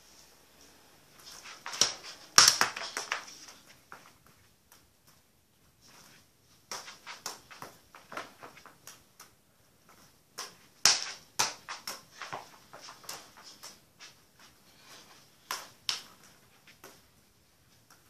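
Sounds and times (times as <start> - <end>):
football tapped with bare feet: 1.6 - 3.3, 10.4 - 13.7.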